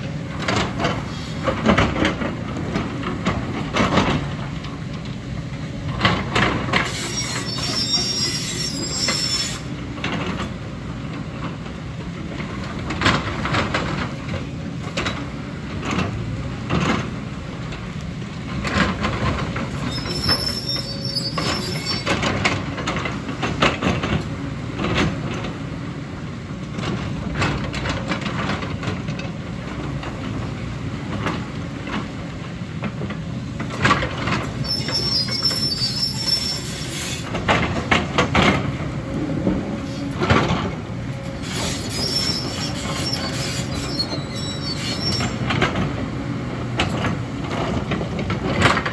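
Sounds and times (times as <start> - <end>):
short high squeals: 6.9 - 9.7, 19.9 - 22.1, 34.6 - 37.3, 41.4 - 45.4
excavator diesel engine running: 7.6 - 48.9.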